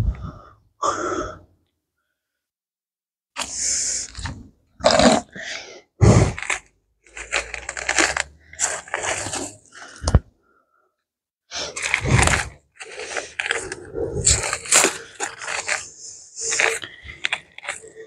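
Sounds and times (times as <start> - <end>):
weeds and soil rustling: 6.3 - 10.0, 11.6 - 18.0.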